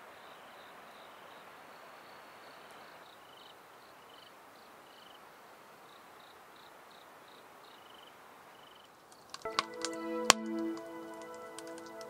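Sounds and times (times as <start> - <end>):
crickets chirping: 0.0 - 9.4
soft hiss: 0.0 - 12.0.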